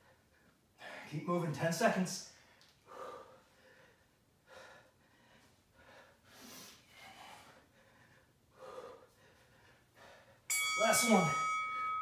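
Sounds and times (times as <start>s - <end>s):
man breathing heavily: 0.0s - 1.1s, 2.3s - 10.5s.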